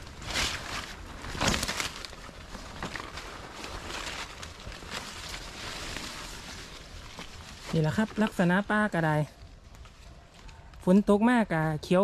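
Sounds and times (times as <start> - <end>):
footsteps through leaf litter: 0.0 - 9.1
brushing through undergrowth: 0.0 - 10.7.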